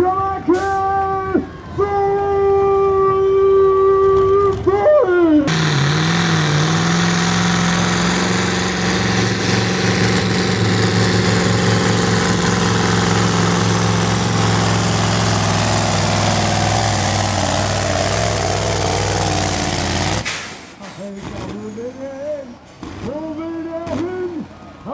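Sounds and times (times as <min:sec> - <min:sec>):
truck diesel engine under load: 0:03.7 - 0:24.9.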